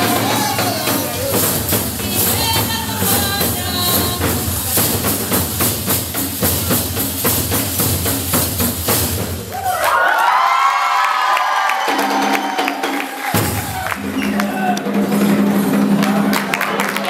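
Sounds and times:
voices calling out together: 0:00.0 - 0:04.3
drums beating fast rhythm: 0:00.0 - 0:10.2, 0:11.6 - 0:17.0.

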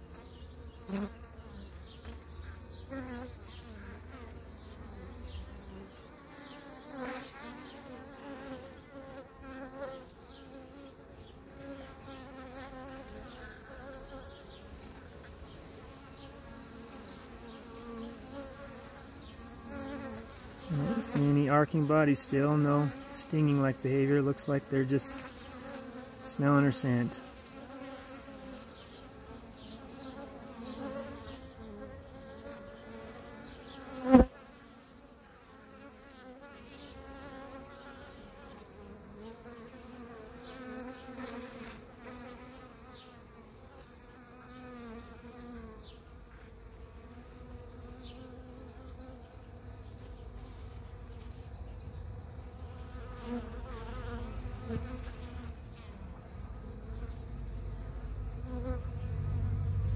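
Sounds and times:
bees buzzing: 0:00.0 - 0:59.9
low rumble: 0:58.8 - 0:59.9.

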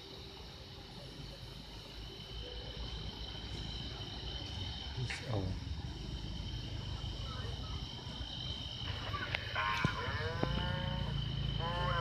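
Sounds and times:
insects chirring: 0:00.0 - 0:12.0
drawn-out falling calls: 0:08.8 - 0:12.0.

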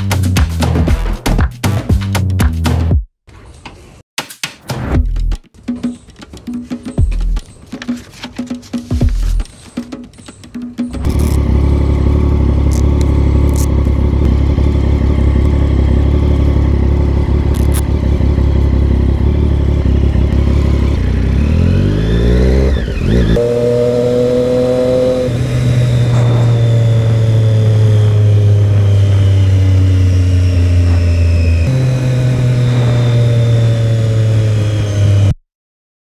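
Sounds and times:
vehicle engine accelerating: 0:11.0 - 0:35.4.

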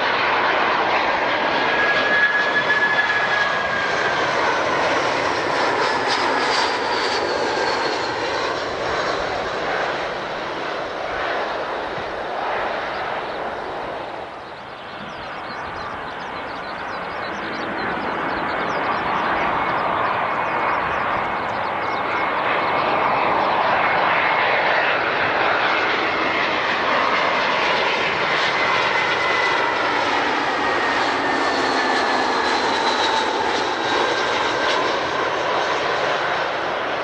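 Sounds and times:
jet engines roaring: 0:00.0 - 0:37.0
high whining tones: 0:11.6 - 0:23.9.

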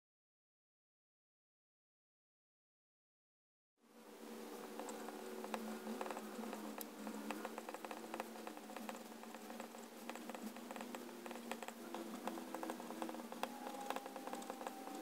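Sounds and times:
faint steady hum: 0:03.8 - 0:15.0
pen nib scratching on paper: 0:04.6 - 0:15.0.

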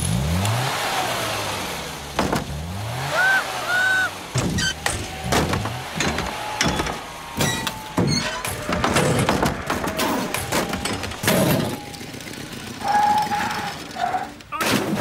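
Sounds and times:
car engine revving: 0:00.0 - 0:14.4
sharp knocks and thumps: 0:02.1 - 0:02.6, 0:04.3 - 0:11.8.

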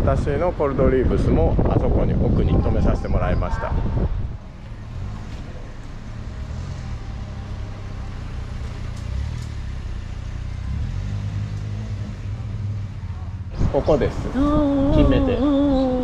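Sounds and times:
car engines humming: 0:03.7 - 0:16.0.

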